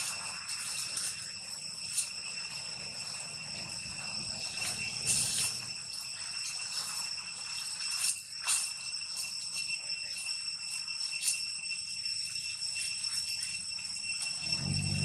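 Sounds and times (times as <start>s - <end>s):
rustles in dry leaves: 0.0s - 10.2s
insect chorus drone: 0.0s - 15.0s.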